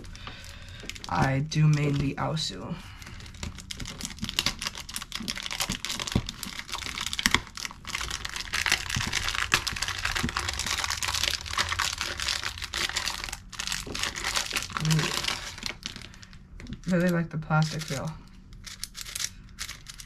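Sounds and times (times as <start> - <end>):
plastic wrapper crinkling: 0.0 - 20.0.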